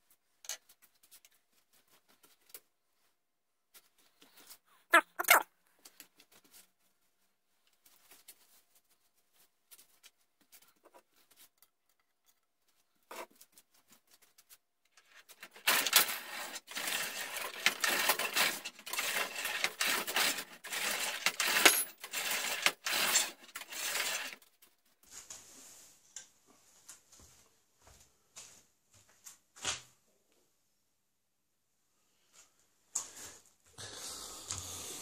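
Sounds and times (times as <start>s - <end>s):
metallic scraping of cutter in barrel: 15.6s - 24.4s.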